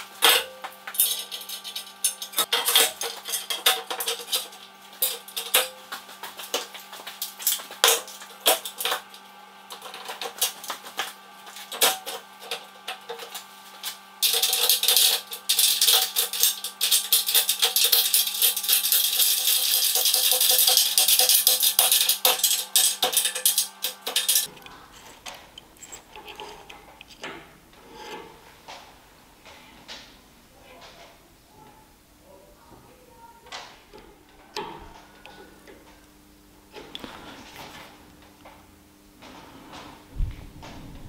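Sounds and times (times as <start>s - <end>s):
metallic clinks and knocks: 14.2s - 27.4s.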